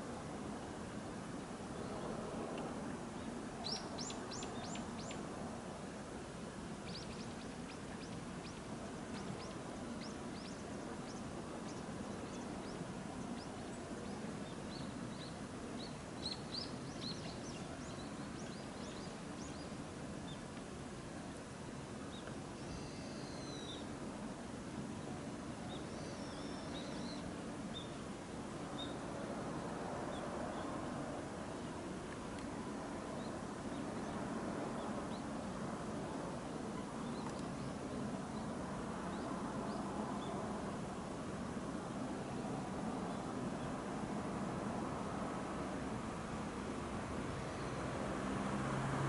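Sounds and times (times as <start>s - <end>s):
low background noise: 0.0s - 49.0s
small birds chirping: 3.6s - 5.2s, 6.8s - 20.4s.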